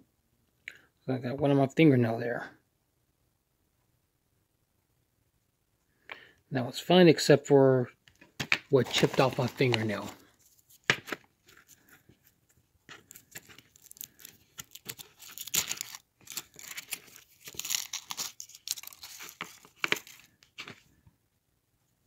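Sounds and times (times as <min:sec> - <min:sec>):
foil wrappers crinkling and tearing: 0:08.7 - 0:10.3, 0:13.0 - 0:20.4.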